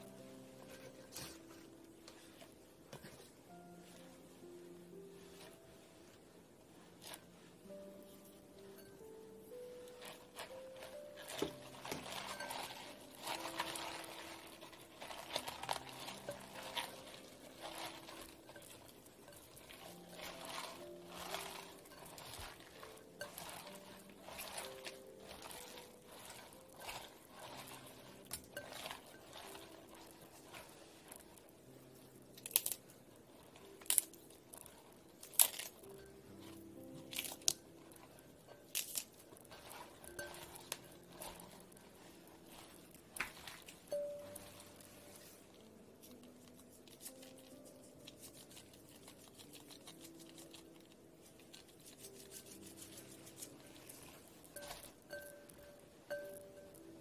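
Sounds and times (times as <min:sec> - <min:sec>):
soft background music: 0:00.0 - 0:57.0
wet leaves rustling and squishing: 0:09.0 - 0:57.0
cabbage leaves snapping: 0:33.8 - 0:35.9.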